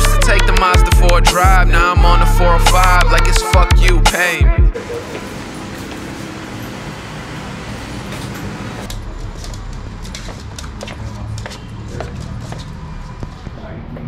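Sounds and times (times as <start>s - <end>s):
street traffic rumble: 4.2s - 14.0s
footsteps on hard floor: 4.9s - 6.4s, 9.2s - 14.0s.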